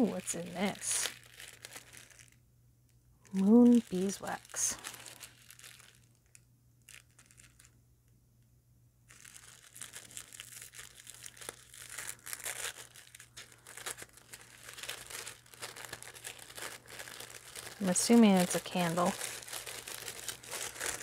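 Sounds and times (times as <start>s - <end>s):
tissue paper crinkling: 0.0s - 2.4s, 3.2s - 7.8s, 9.1s - 21.0s.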